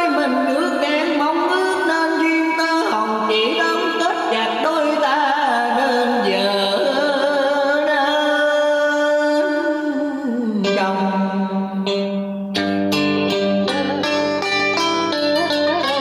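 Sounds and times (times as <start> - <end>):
person singing: 0.0 - 12.4, 13.0 - 16.0
instrumental accompaniment: 10.6 - 16.0.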